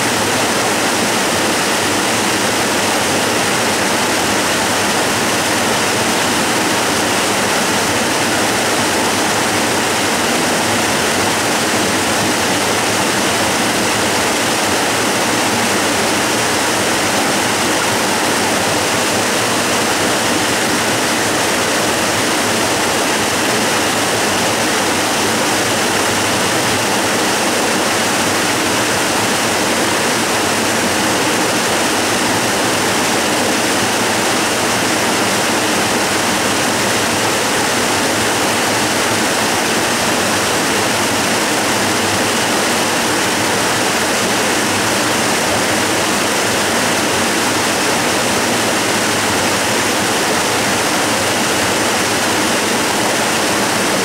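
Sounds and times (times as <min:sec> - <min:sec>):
waterfall rushing: 0:00.0 - 0:54.0.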